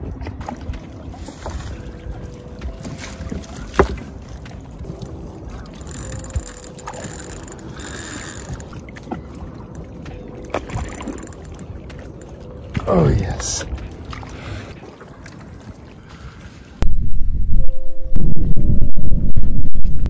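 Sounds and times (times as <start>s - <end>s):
waves lapping at hull: 0.1s - 16.8s
wind on microphone: 16.2s - 20.0s.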